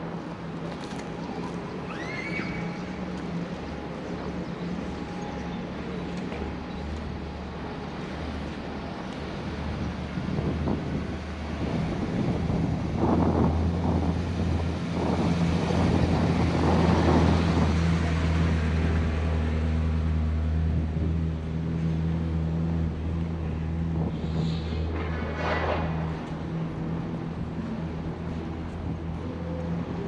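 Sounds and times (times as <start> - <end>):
wind buffeting microphone: 9.2 - 19.4.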